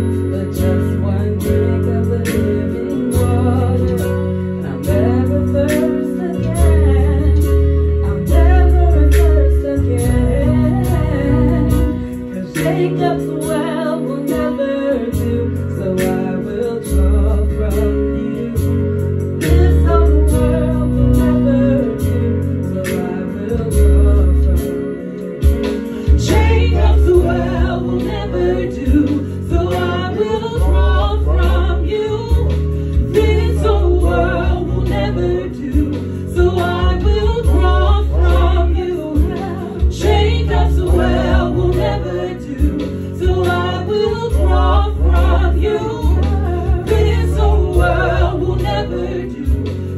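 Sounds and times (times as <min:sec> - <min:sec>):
synthesizer chords and bass: 0:00.0 - 0:49.9
woman singing lead: 0:00.0 - 0:49.9
backing singers: 0:26.0 - 0:49.9.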